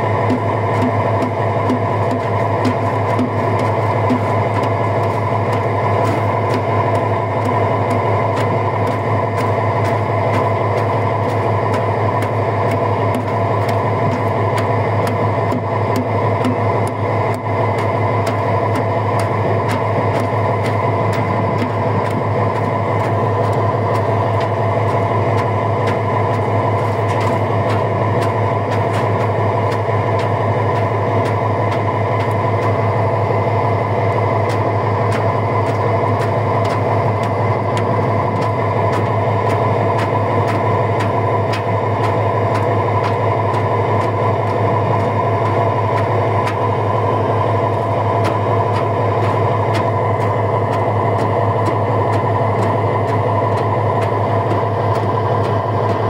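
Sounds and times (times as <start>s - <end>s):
boat engine droning: 0.0s - 56.0s
water rushing along hull: 0.0s - 56.0s.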